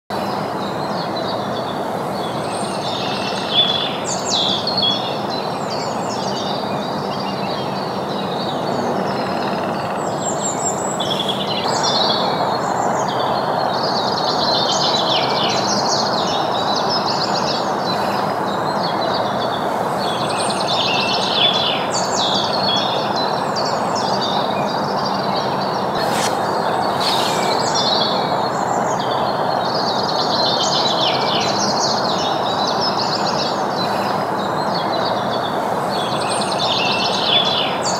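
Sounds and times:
songbirds chirping and singing: 14.7s - 37.9s
steady rushing noise: 25.8s - 28.8s.

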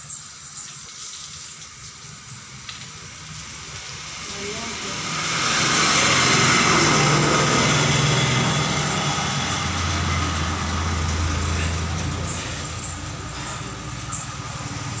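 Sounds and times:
broad hiss of passing bus: 0.0s - 15.0s
bus engine humming: 3.0s - 15.0s.

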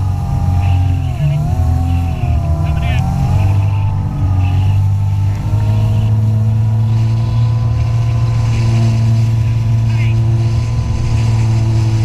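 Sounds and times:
jet ski engine running: 0.0s - 12.0s.

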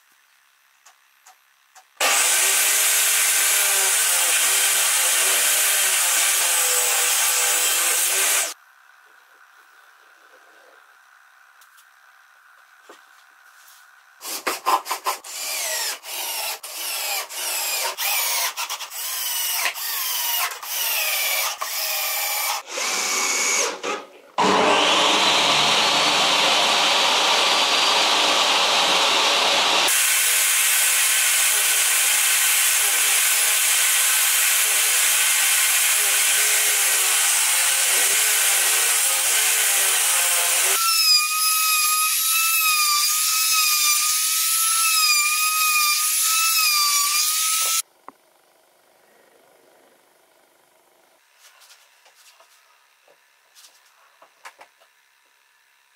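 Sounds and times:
trim router whine: 0.1s - 8.6s, 15.3s - 47.9s
cordless drill driving screws: 2.0s - 8.6s, 15.3s - 26.0s
power tool cutting: 2.0s - 8.6s, 14.2s - 47.9s
table saw motor running: 2.0s - 8.6s, 24.4s - 47.8s.

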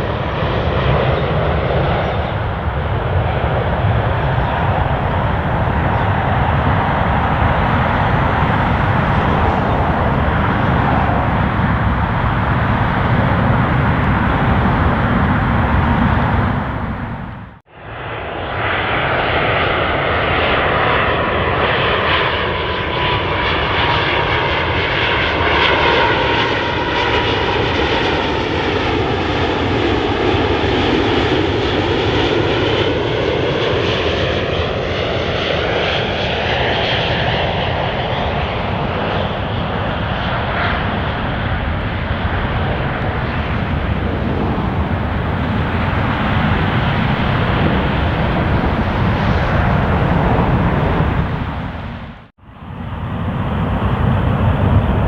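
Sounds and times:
jet engines rushing: 0.0s - 55.0s
thin engine whine: 1.0s - 17.6s, 36.5s - 55.0s.

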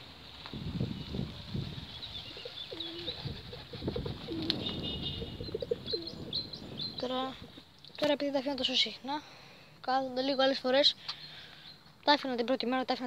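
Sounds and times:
small birds chirping: 0.8s - 13.0s
pigeons cooing: 1.8s - 7.0s.

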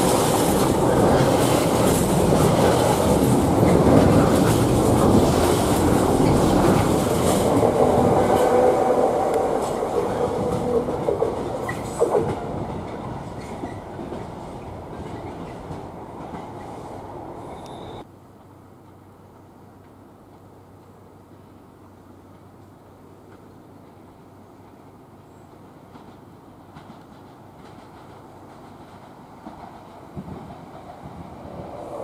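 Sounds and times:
freight train rumbling and clattering: 0.0s - 18.1s, 22.2s - 32.0s
wheel squeal: 17.4s - 18.0s.

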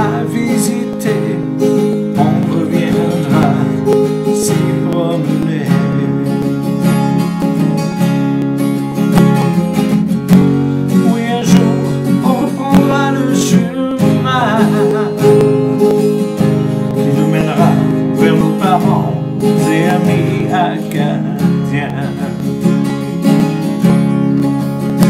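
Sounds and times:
man singing: 0.0s - 6.8s, 10.9s - 23.0s
acoustic guitar strumming: 0.0s - 25.0s.

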